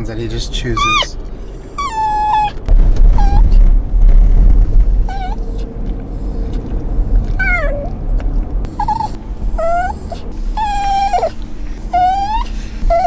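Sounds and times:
car rumble: 0:00.0 - 0:13.0
dog whining: 0:00.8 - 0:03.6, 0:05.0 - 0:08.0, 0:08.7 - 0:13.0.

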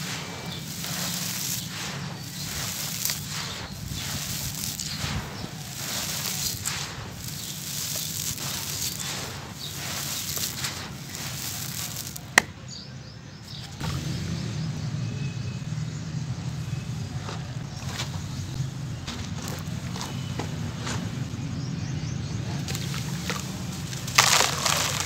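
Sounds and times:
sand and gravel pouring: 0:00.0 - 0:12.5, 0:22.6 - 0:25.0.

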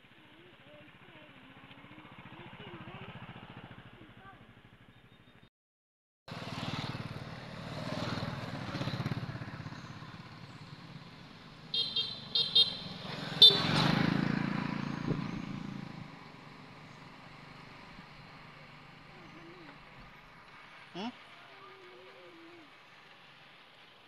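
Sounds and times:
vehicles driving past: 0:00.0 - 0:05.4, 0:06.3 - 0:24.0
car horn beeping: 0:11.7 - 0:13.9.

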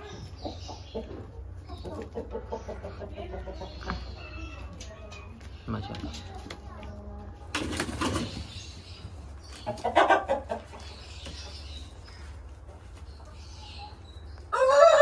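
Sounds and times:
chickens clucking and calling: 0:00.0 - 0:15.0
rooster crowing: 0:14.5 - 0:15.0.

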